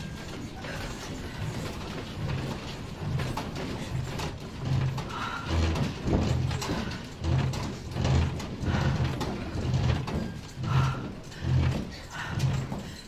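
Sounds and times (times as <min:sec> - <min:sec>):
furniture rattling and creaking: 0:00.0 - 0:13.0
heavy uneven knocking: 0:00.0 - 0:13.0.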